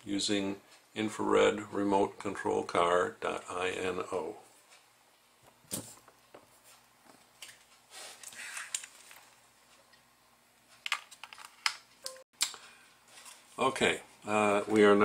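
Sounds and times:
hands handling plastic kit: 10.8s - 12.6s.

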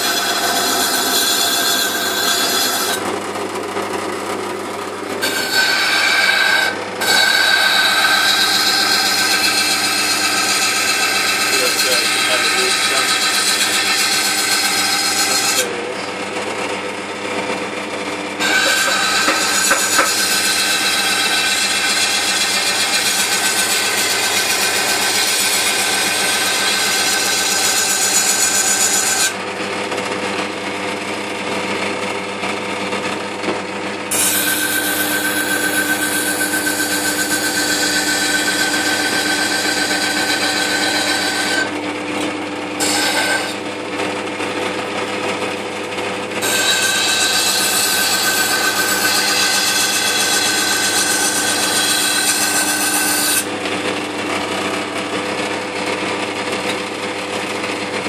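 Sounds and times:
steel grinding on wet wheel: 0.0s - 3.0s, 5.2s - 15.8s, 18.4s - 29.3s, 46.4s - 53.0s
grinder motor whine: 0.0s - 58.0s.

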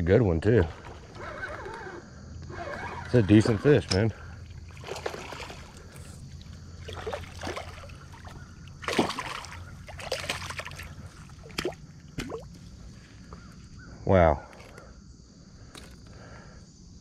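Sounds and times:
fish splashing in water: 4.5s - 12.6s.

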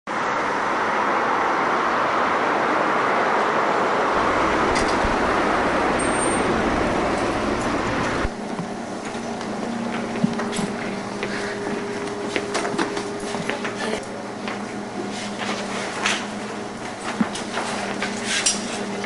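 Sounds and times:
road traffic rushing: 0.1s - 19.0s
low rumble: 4.1s - 8.4s.

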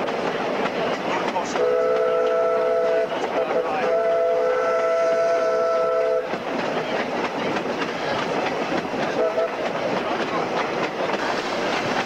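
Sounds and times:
train clicking over rail joints: 0.0s - 12.0s
steam whistle blast: 1.6s - 6.3s.

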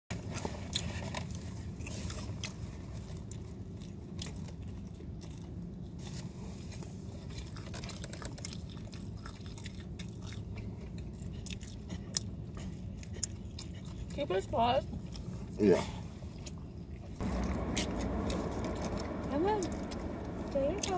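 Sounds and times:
person chewing pizza: 0.1s - 19.2s
steady low hum: 16.1s - 20.9s.

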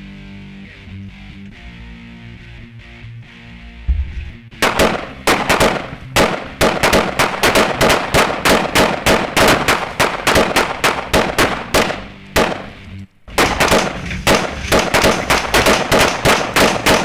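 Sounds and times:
rapid gunfire: 4.6s - 17.0s.

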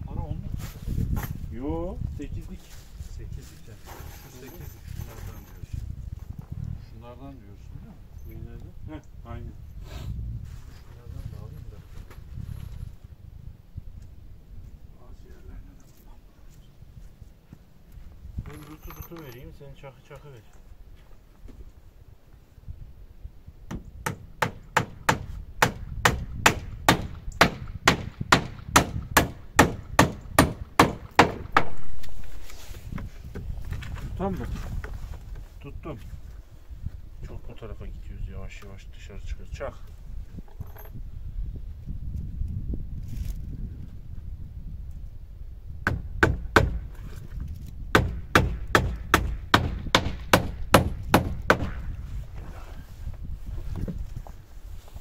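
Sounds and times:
hammer driving nails into wood: 23.7s - 32.2s, 45.8s - 47.0s, 47.9s - 51.8s.

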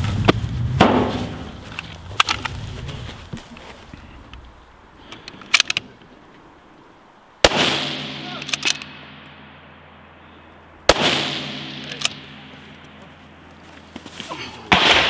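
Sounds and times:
footsteps: 0.0s - 5.6s, 12.2s - 14.8s
rifle shot: 0.8s - 1.6s, 7.4s - 9.5s, 10.9s - 12.5s, 14.7s - 15.0s
rifle handling clicks: 1.7s - 2.6s, 5.1s - 6.1s, 8.4s - 8.9s, 11.9s - 13.1s.

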